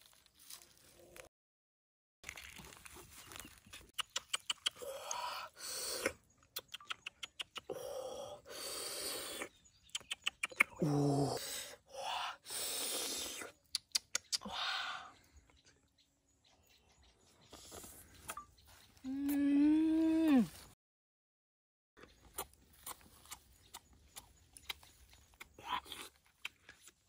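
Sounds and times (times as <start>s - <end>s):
person humming: 10.7s - 12.3s, 19.0s - 20.7s.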